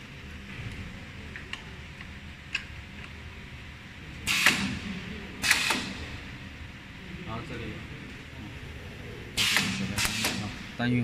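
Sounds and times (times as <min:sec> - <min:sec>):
pneumatic cylinder air hiss: 0:04.3 - 0:04.7, 0:05.4 - 0:05.9, 0:09.4 - 0:10.6.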